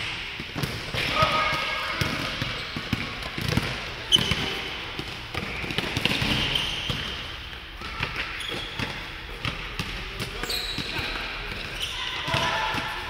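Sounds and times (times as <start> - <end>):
basketball bouncing: 0.5 - 7.2
sneaker squeaks: 2.3 - 4.8, 5.4 - 13.0.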